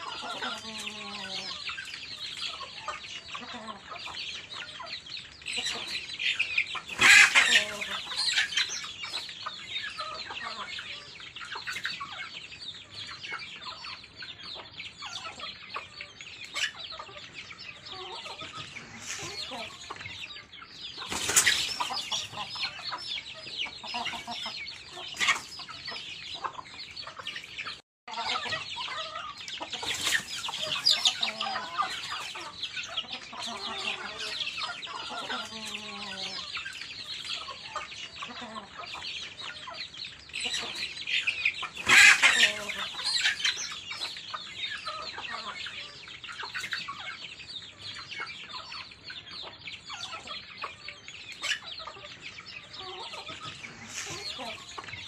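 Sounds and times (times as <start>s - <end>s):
chicks peeping: 0.0s - 55.0s
hens clucking: 0.0s - 55.0s
loud chicken call: 6.9s - 8.4s, 41.8s - 43.4s.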